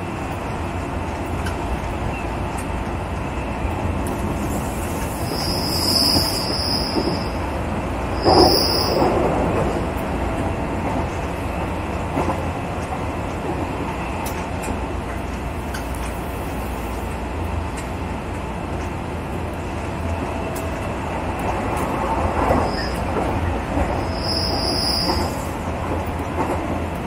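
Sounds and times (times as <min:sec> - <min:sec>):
train rumbling on rails: 0:00.0 - 0:27.0
high wheel squeal: 0:05.1 - 0:07.4, 0:08.2 - 0:09.0, 0:24.0 - 0:25.4.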